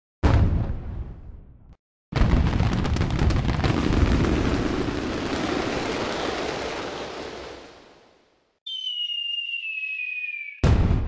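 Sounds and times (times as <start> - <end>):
fireworks bursting: 2.2 - 11.0.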